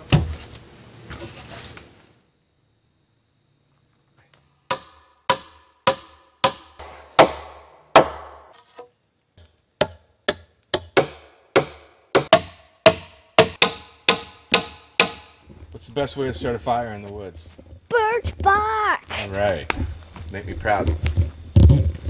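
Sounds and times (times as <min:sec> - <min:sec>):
hammer striking nails: 0:04.7 - 0:08.5, 0:09.8 - 0:15.4.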